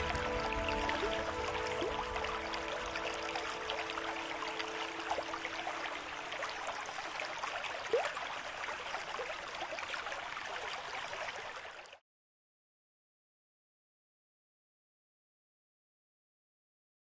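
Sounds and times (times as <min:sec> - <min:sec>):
flowing water: 0:00.0 - 0:12.0
splashes: 0:00.0 - 0:12.0.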